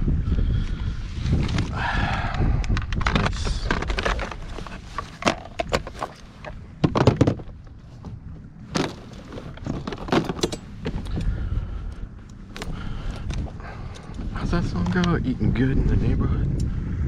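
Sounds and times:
fishing gear clattering on kayak: 1.5 - 11.3, 12.5 - 15.0.

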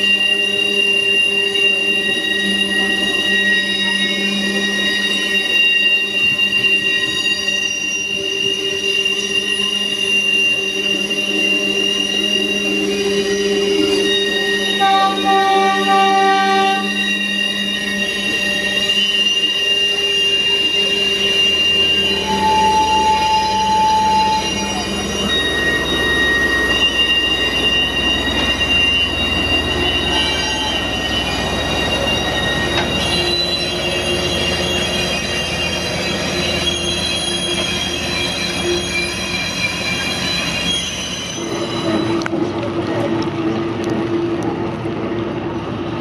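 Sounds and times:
train wheels squealing: 0.0 - 44.6
low rumble of train cars: 0.0 - 46.0.

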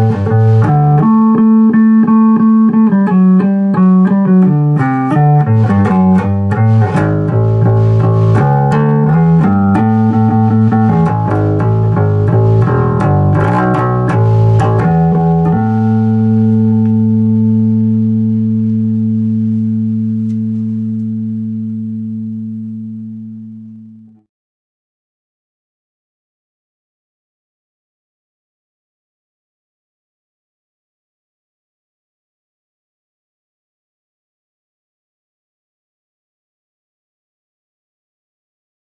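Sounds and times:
bass guitar plucked notes: 0.0 - 24.3.

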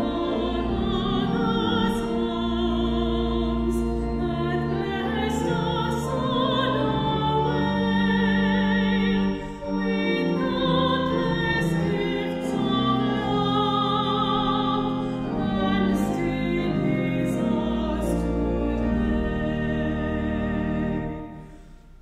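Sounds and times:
sustained keyboard accompaniment: 0.0 - 22.0.

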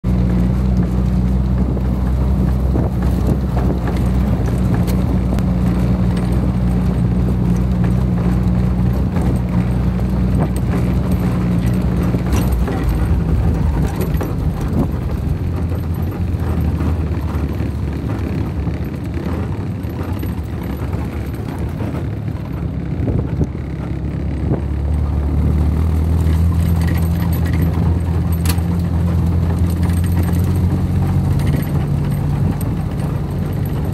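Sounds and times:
jeep engine running: 0.0 - 33.9
body knocks and rattles: 0.1 - 33.9.

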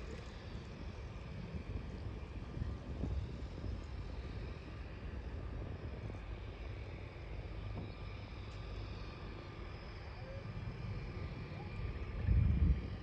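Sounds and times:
wind buffeting microphone: 0.0 - 8.3, 10.5 - 13.0.

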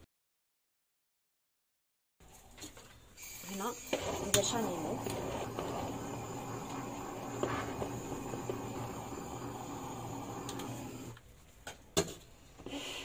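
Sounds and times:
blowtorch flame hissing: 3.2 - 11.2.

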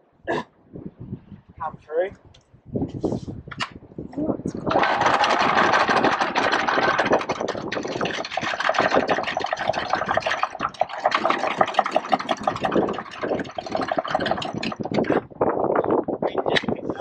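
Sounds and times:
anchor chain rattling: 4.6 - 15.2.

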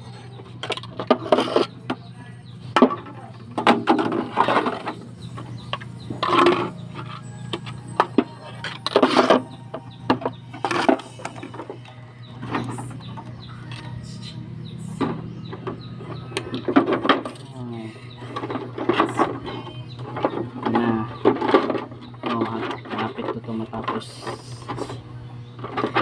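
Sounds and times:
steady low hum: 0.0 - 26.0
wire scraping through plastic: 0.8 - 1.8.

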